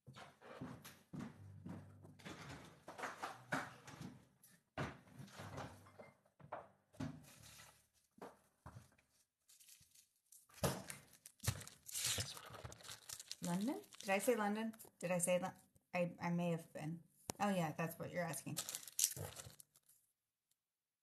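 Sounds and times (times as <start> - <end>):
aluminium foil crinkling and tearing: 9.4 - 14.5, 18.3 - 20.0.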